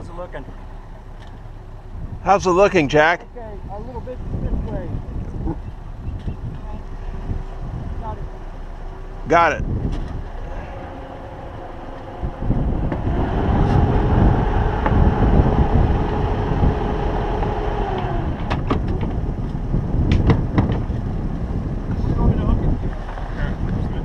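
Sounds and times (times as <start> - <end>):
boat engine humming: 0.0 - 24.0
sharp clicks and knocks: 17.4 - 20.9.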